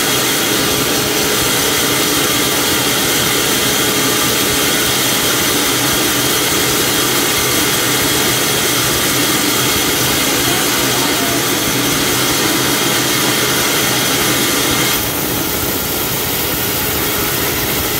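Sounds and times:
band saw cutting log: 0.0 - 17.9
thin high steady tone: 7.6 - 15.0.

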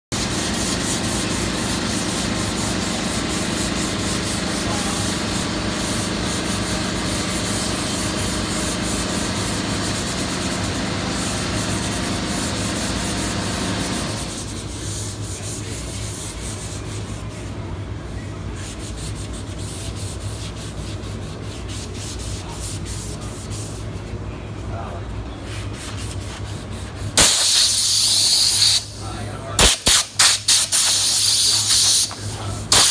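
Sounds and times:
hand sanding painted wood: 0.2 - 17.6, 18.6 - 24.1
steady hum: 0.2 - 32.9.

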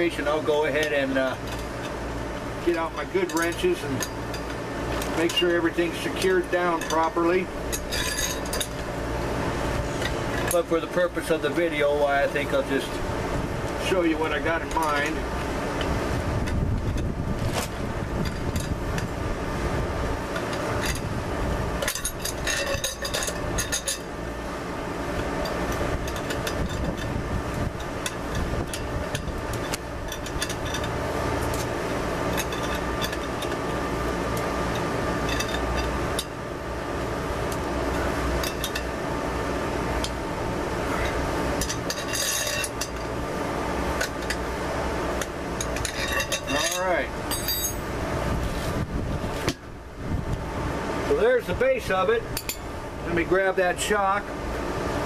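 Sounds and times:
wrench and nuts clinking on metal: 2.6 - 8.8, 21.8 - 24.1, 27.8 - 31.7, 32.3 - 33.6, 34.4 - 36.3, 38.4 - 38.9, 41.0 - 43.1, 45.6 - 47.9, 52.3 - 52.6.

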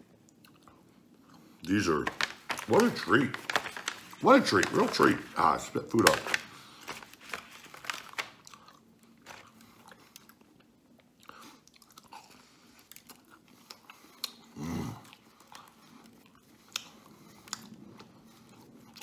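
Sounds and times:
man chewing: 0.2 - 1.6, 8.4 - 19.0.

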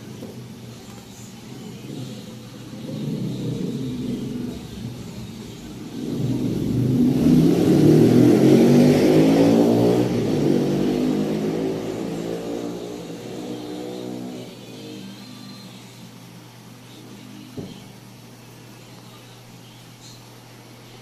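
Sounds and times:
vehicle passing by: 5.8 - 14.5.

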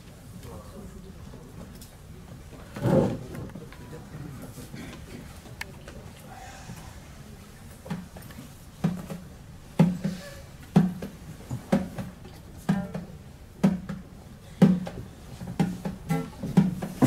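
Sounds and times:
hand drum beating: 12.7 - 14.0
acoustic guitar playing: 16.1 - 16.5.

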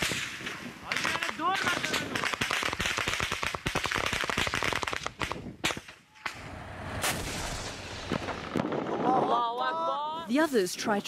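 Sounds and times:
gunshots: 0.0 - 8.7.

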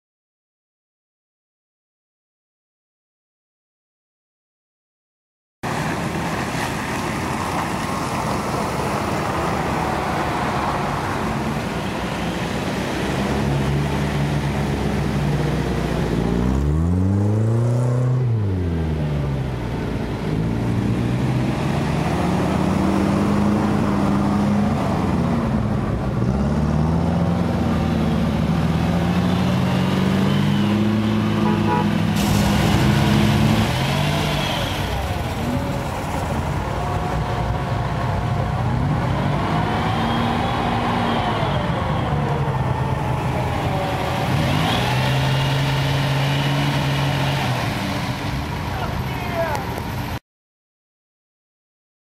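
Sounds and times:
engine revving under load: 12.5 - 19.6, 20.2 - 36.4, 38.1 - 48.4.

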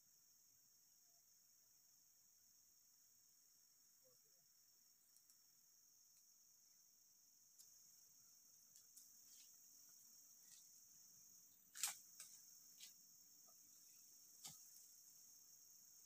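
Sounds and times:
insects droning: 0.0 - 16.0
twigs and dry leaves snapping: 11.7 - 13.0, 13.9 - 14.9.

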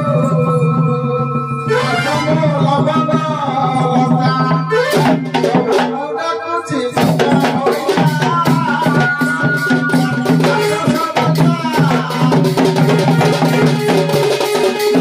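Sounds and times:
person singing melody: 0.0 - 15.0
barrel drums beaten quickly: 7.0 - 15.0.

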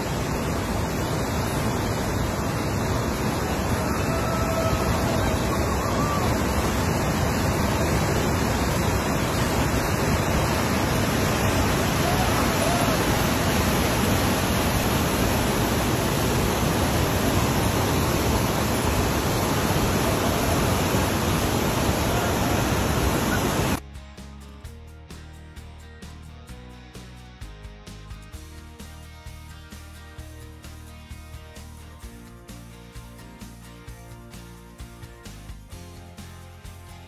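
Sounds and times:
whitewater rapids rushing: 0.0 - 23.8.

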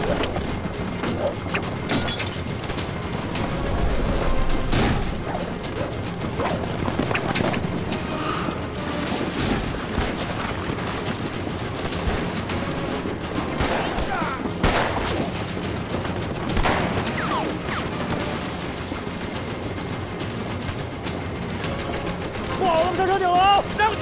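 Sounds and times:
rifle shots: 13.6 - 15.3.

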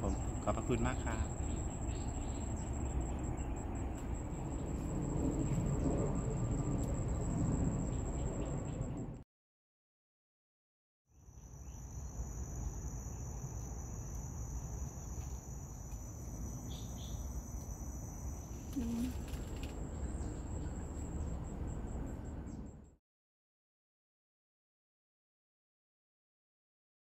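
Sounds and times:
insects trilling: 0.0 - 9.0, 11.2 - 22.6
low rumble: 0.0 - 9.2.

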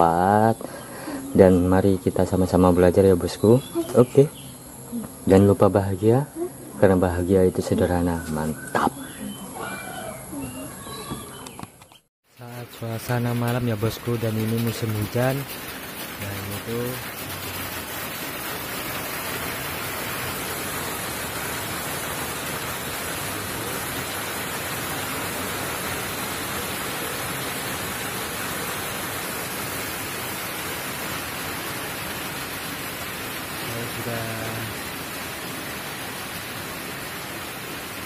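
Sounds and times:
rain falling: 12.2 - 38.0.

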